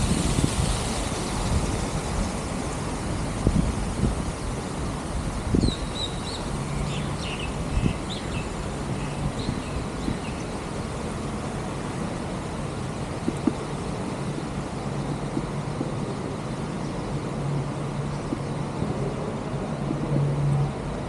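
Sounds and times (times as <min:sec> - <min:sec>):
bicycle road noise: 0:00.0 - 0:21.0
rushing wind: 0:00.0 - 0:21.0
small birds chirping: 0:05.4 - 0:10.6.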